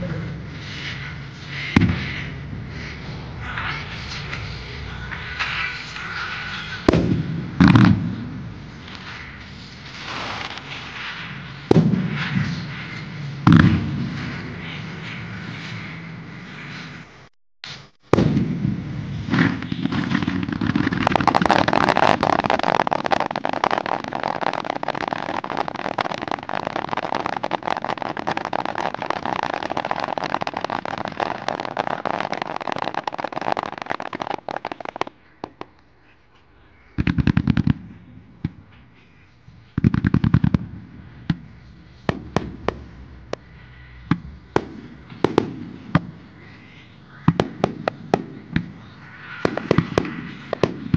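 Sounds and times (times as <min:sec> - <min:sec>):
fireworks bangs and crackling: 0:00.0 - 0:50.9
heavy firework booms: 0:11.7 - 0:12.8, 0:18.1 - 0:24.0.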